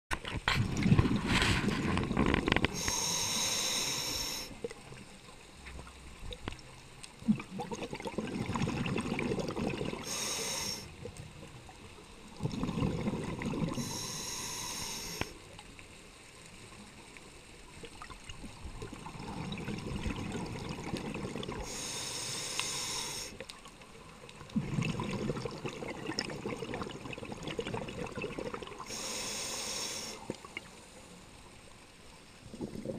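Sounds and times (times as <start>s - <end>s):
diver exhaling bubbles: 0.5s - 4.5s, 7.2s - 10.9s, 12.4s - 15.3s, 18.9s - 21.9s, 24.5s - 29.0s, 32.4s - 32.9s
regulator hiss on inhale: 2.6s - 4.8s, 10.0s - 11.0s, 13.7s - 15.5s, 21.6s - 23.5s, 28.8s - 31.5s.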